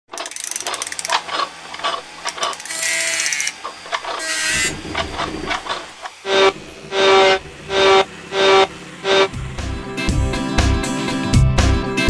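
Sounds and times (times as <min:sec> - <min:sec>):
ratcheting clicks: 0:00.1 - 0:05.8
mechanical clicks and clanks: 0:00.1 - 0:06.5
hissing whir: 0:00.3 - 0:11.2.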